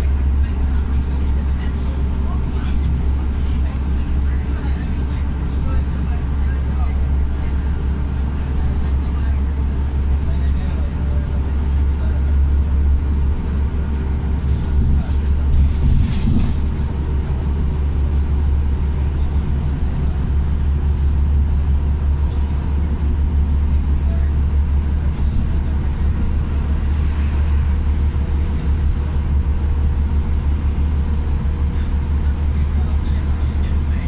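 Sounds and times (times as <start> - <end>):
bus engine and road drone: 0.0 - 34.0
light rattles: 12.9 - 21.4.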